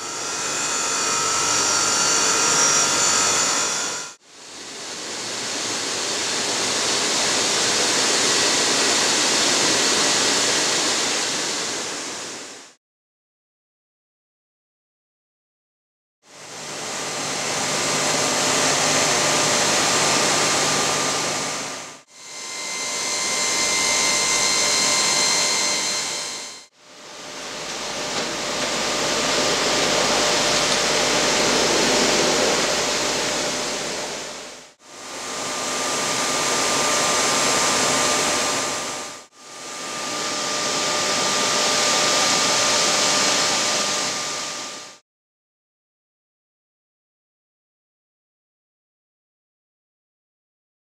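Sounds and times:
tile-cutting machinery hissing: 0:00.0 - 0:04.2, 0:16.6 - 0:44.7.

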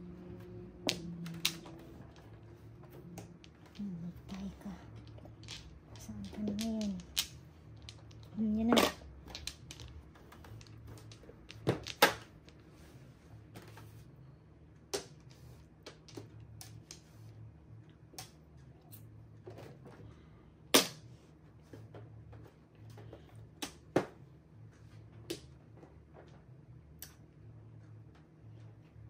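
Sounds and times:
mahjong tiles clacking: 0:00.4 - 0:12.7.

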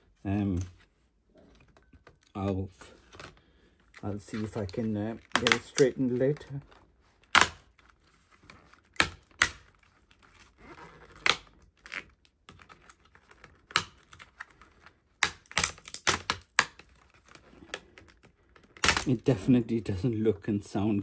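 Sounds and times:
metal plate cracking and snapping: 0:15.2 - 0:16.8.

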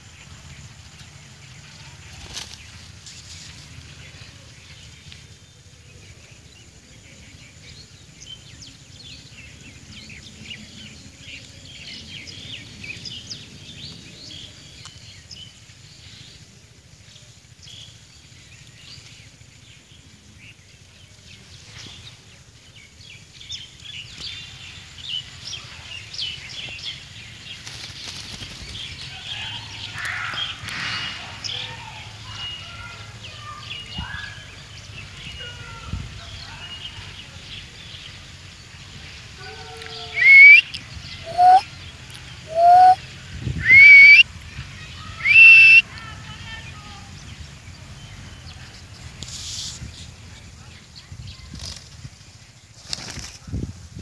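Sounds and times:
low outdoor rumble: 0:00.0 - 0:54.0
parakeets chirping: 0:40.2 - 0:40.6, 0:42.5 - 0:43.0, 0:43.6 - 0:44.2, 0:45.2 - 0:45.8.

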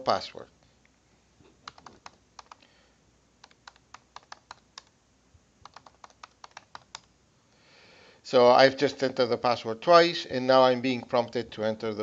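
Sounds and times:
keyboard typing: 0:01.5 - 0:02.7, 0:03.4 - 0:05.0, 0:05.6 - 0:07.1.

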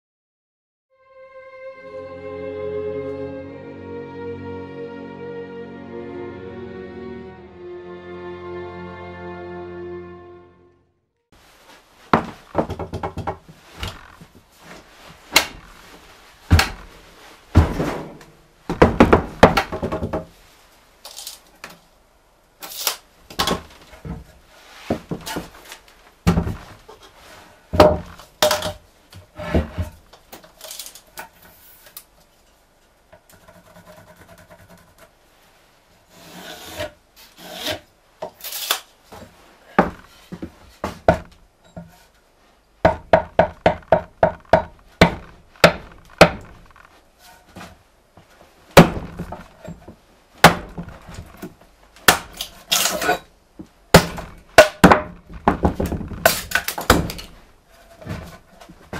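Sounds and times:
wood knocking and scraping: 0:12.1 - 0:20.4, 0:27.8 - 0:30.6, 0:39.2 - 0:42.1, 0:42.8 - 0:47.8, 0:48.8 - 0:52.7, 0:53.6 - 0:58.9.

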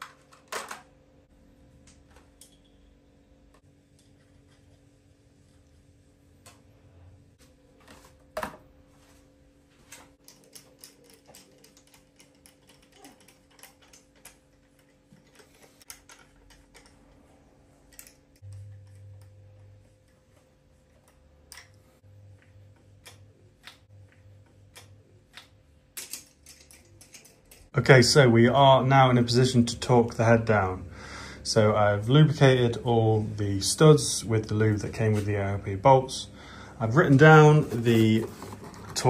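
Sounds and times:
metallic clicks of nuts and washers: 0:26.0 - 0:27.7.

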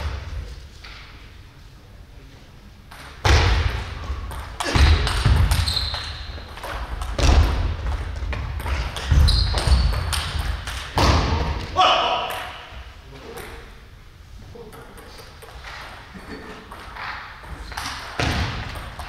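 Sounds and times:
table tennis ball strikes: 0:02.9 - 0:11.6
shoe squeaks: 0:05.5 - 0:06.5, 0:09.1 - 0:10.1.

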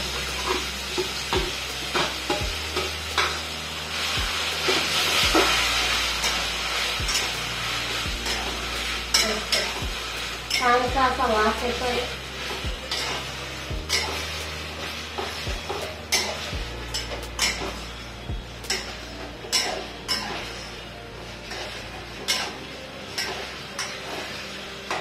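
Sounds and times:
spatula scraping metal pan: 0:00.0 - 0:18.0, 0:18.6 - 0:20.7
soft frying sizzle: 0:00.0 - 0:25.0.

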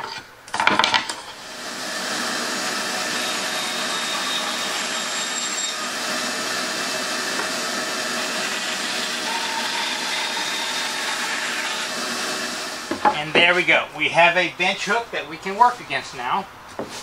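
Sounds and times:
band saw cutting wood: 0:01.2 - 0:13.5.

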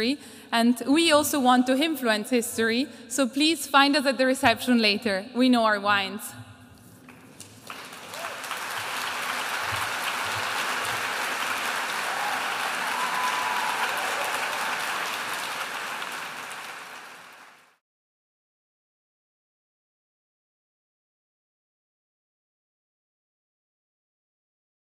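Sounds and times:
audience applauding: 0:07.1 - 0:17.8.

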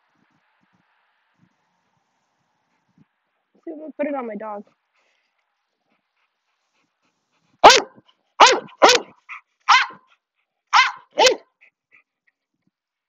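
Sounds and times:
dog barking: 0:07.6 - 0:10.1, 0:10.7 - 0:11.5.

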